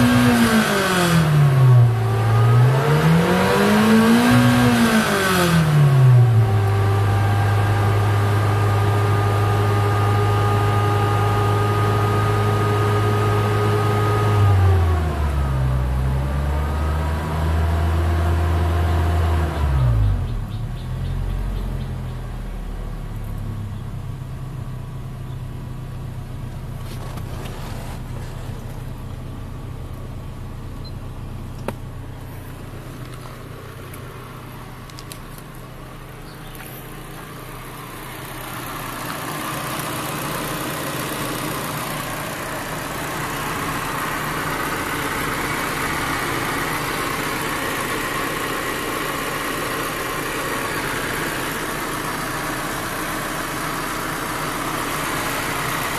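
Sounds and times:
car engine idling: 0:17.8 - 0:55.9.

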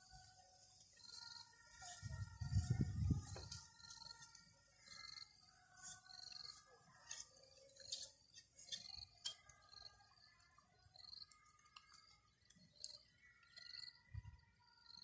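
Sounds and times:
knife scraping bamboo strips: 0:05.8 - 0:09.5.

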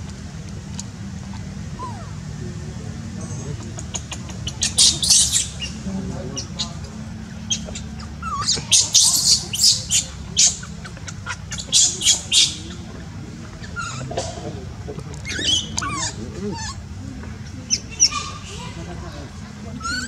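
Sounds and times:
baby monkey screaming: 0:01.3 - 0:02.2, 0:03.2 - 0:05.8, 0:07.4 - 0:12.9, 0:13.6 - 0:14.2, 0:15.2 - 0:16.9, 0:17.7 - 0:18.6, 0:19.8 - 0:20.0.

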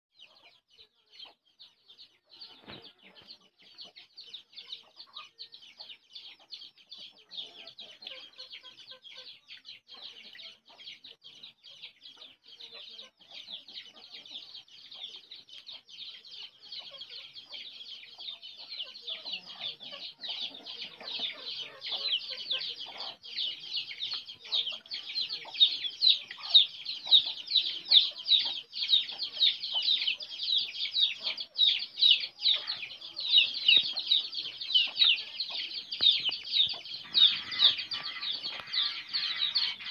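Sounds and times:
hens clucking: 0:02.2 - 0:39.9.

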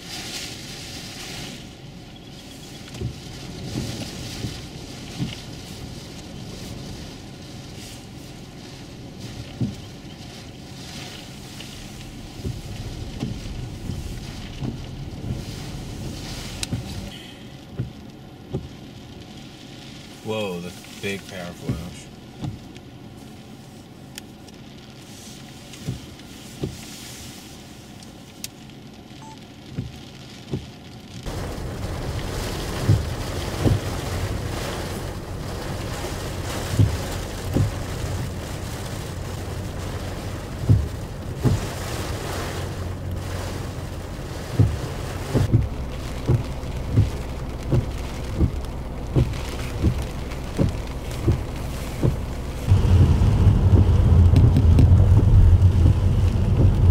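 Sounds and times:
heavy rain: 0:00.0 - 0:56.9
high wind: 0:31.3 - 0:56.9
short sharp thumps: 0:50.6 - 0:56.9.

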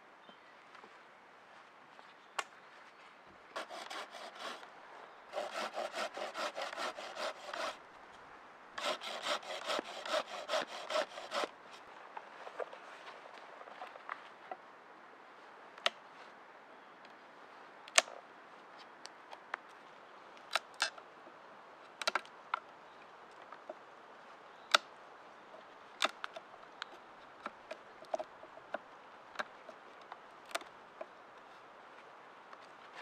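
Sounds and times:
knife shaving bark: 0:05.4 - 0:07.8, 0:08.8 - 0:11.5.

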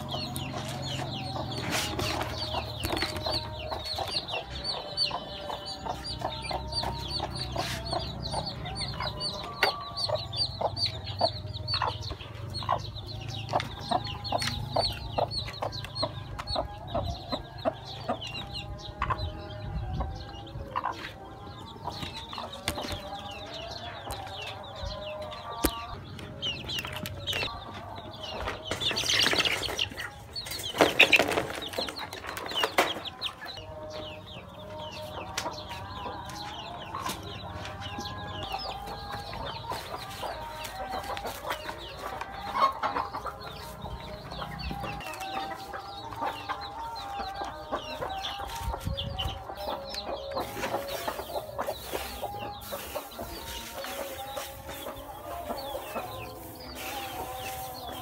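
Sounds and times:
chicks peeping: 0:00.0 - 0:58.0
hens clucking: 0:00.0 - 0:58.0.

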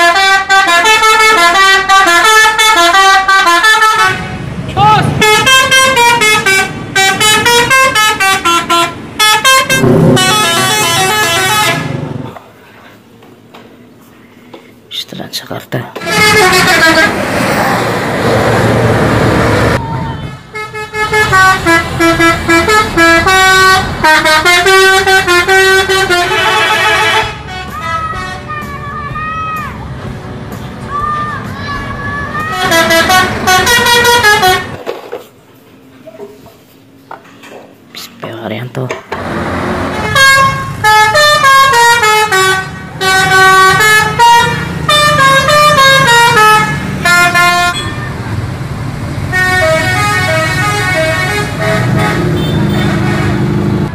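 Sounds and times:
harsh horn blast: 0:00.0 - 0:12.3, 0:16.0 - 0:17.5, 0:18.6 - 0:28.7, 0:32.4 - 0:34.8, 0:39.2 - 0:48.3, 0:49.2 - 0:53.9
multi-tone bus horn tune: 0:00.0 - 0:12.3, 0:16.0 - 0:17.4, 0:19.3 - 0:28.9, 0:32.4 - 0:34.8, 0:39.2 - 0:48.4, 0:49.2 - 0:53.9
passing traffic: 0:00.0 - 0:53.9.

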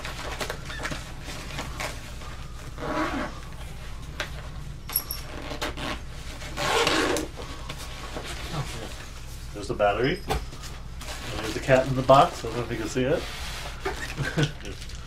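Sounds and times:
zipper noise: 0:02.8 - 0:03.6, 0:05.2 - 0:09.0.

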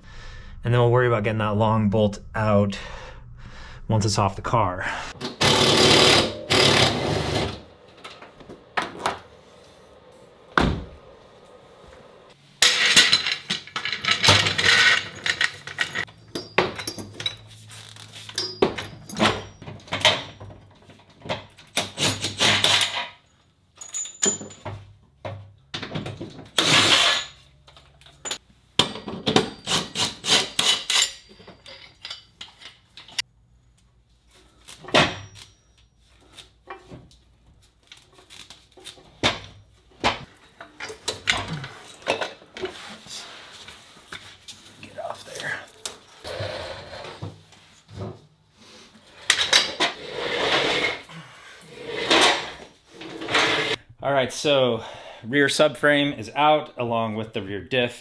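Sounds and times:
impact wrench undoing bolts: 0:05.2 - 0:09.1, 0:25.7 - 0:33.3
tools clanking on metal: 0:12.6 - 0:17.6, 0:18.2 - 0:23.2, 0:23.8 - 0:33.3, 0:37.9 - 0:42.9, 0:49.2 - 0:50.0.

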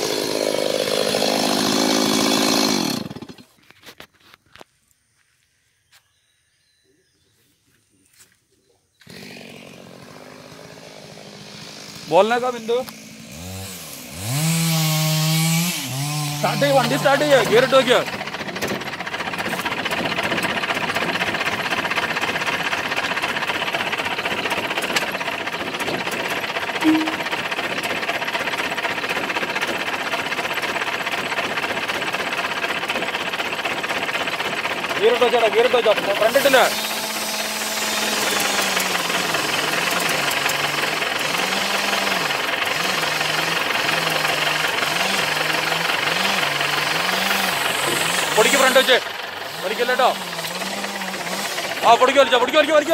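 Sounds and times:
engine running: 0:15.5 - 0:52.9
vehicle engine revving: 0:36.2 - 0:52.9.

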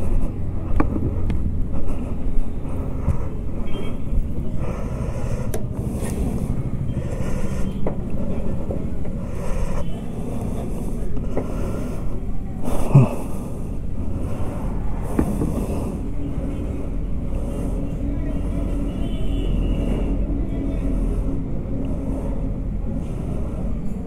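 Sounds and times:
road traffic: 0:00.0 - 0:24.0.

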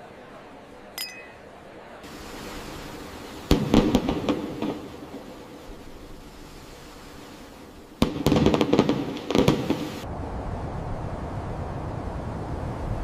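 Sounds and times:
crystal glasses clinking: 0:01.0 - 0:01.5
firework bangs and crackles: 0:02.1 - 0:10.1.

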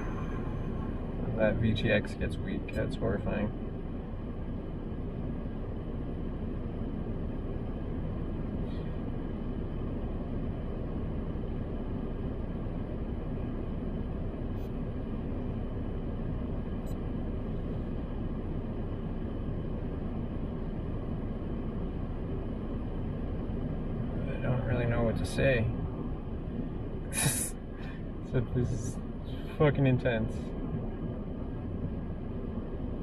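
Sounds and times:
car cabin rumble with hum: 0:00.0 - 0:33.0.

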